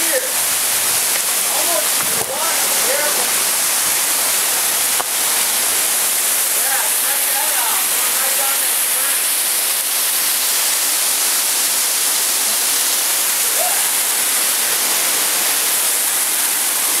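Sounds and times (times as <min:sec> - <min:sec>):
waterfall rushing over rocks: 0:00.0 - 0:17.0.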